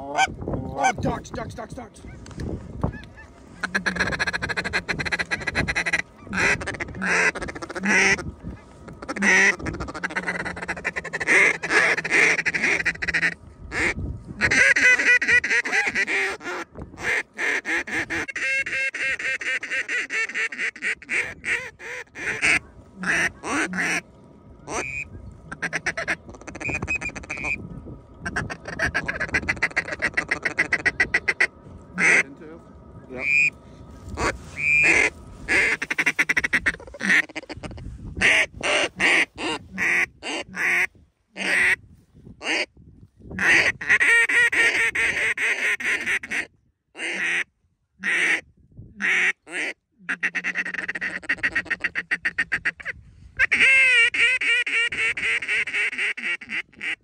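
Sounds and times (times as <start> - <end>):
duck calls quacking and chattering: 0.0 - 1.3, 2.0 - 27.6, 28.2 - 32.4, 33.0 - 41.8, 42.4 - 42.7, 43.4 - 48.4, 49.0 - 57.0.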